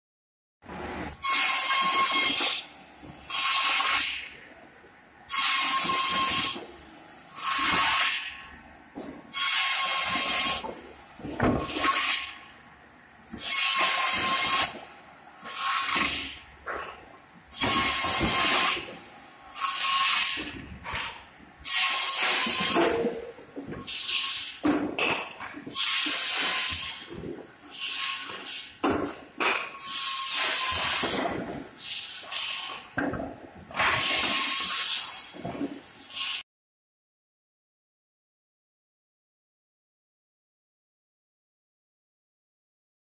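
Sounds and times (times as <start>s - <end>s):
circular saw cutting wood: 1.1s - 2.7s, 5.3s - 6.6s, 7.3s - 8.2s, 9.3s - 10.7s, 19.5s - 23.2s, 29.8s - 32.8s.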